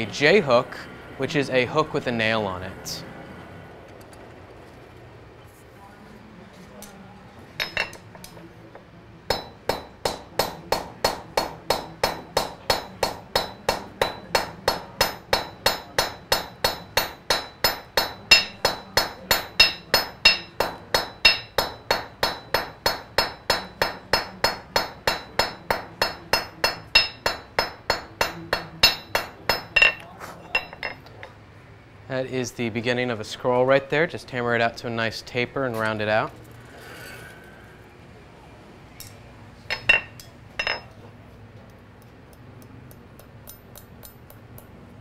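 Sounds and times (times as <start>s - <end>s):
hammer ringing on anvil: 7.6s - 8.0s, 9.3s - 31.0s, 39.7s - 41.0s, 42.9s - 44.7s.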